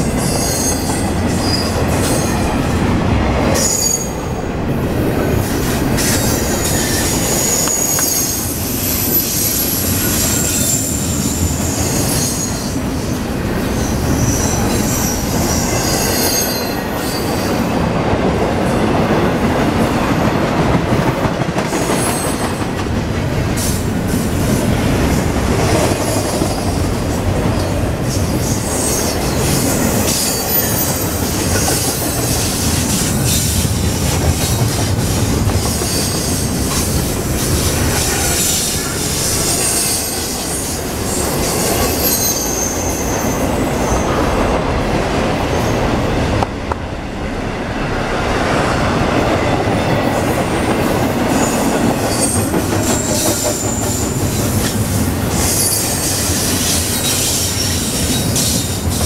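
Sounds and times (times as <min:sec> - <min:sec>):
train wheels rumbling on rails: 0:00.0 - 0:59.0
high-pitched wheel squeals: 0:03.6 - 0:04.2, 0:06.1 - 0:12.8, 0:38.2 - 0:44.1.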